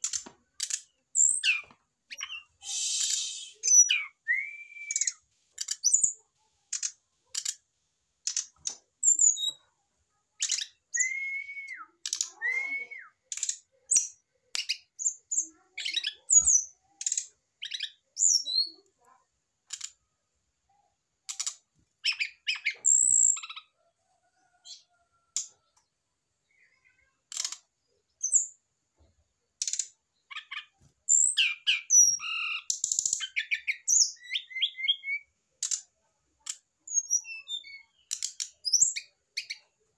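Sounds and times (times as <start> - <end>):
bird whistles: 2.2 - 5.2, 10.9 - 13.2.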